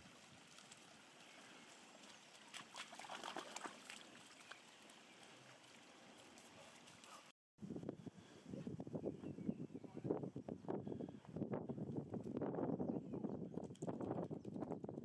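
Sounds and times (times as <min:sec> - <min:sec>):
light rustling and crackling: 0:00.0 - 0:02.7
stream trickling over stones: 0:00.0 - 0:07.1.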